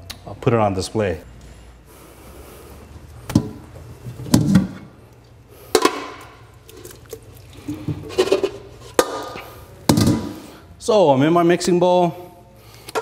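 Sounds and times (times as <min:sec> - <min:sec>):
water in sink: 0:05.7 - 0:09.4.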